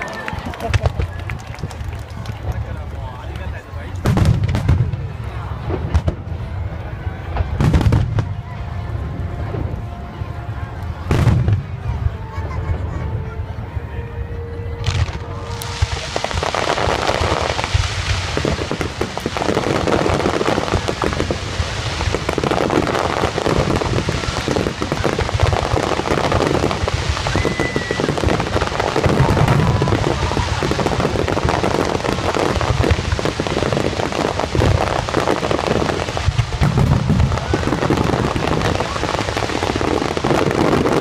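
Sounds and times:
fireworks booming: 3.9s - 13.5s, 14.7s - 41.0s
crackle of firework stars: 14.8s - 41.0s.

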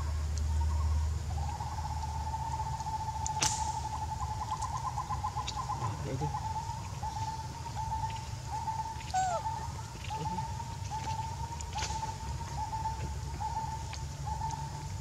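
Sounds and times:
low outdoor rumble: 0.0s - 15.0s
bird calling high notes: 9.1s - 10.6s.

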